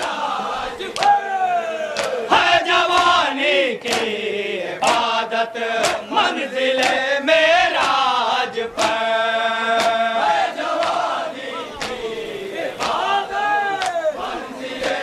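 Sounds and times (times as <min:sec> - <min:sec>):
men chanting a lament: 0:00.0 - 0:15.0
collective chest-beating slaps: 0:01.0 - 0:01.2, 0:01.9 - 0:04.2, 0:04.8 - 0:05.2, 0:05.8 - 0:07.1, 0:07.8 - 0:08.1, 0:08.8 - 0:10.1, 0:10.8 - 0:11.1, 0:11.7 - 0:12.1, 0:12.8 - 0:13.1, 0:13.8 - 0:14.0.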